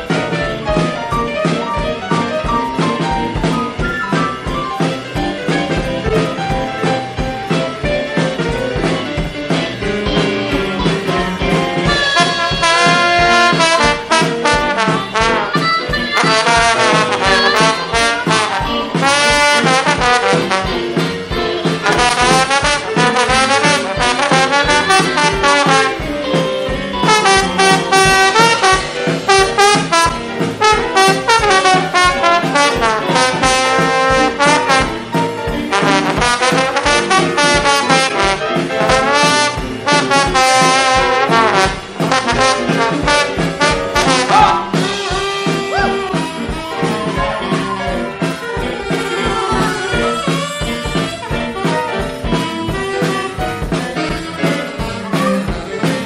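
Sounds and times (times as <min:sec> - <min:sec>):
jazz band playing: 0:00.0 - 0:56.0
trombone lead line: 0:11.4 - 0:56.0.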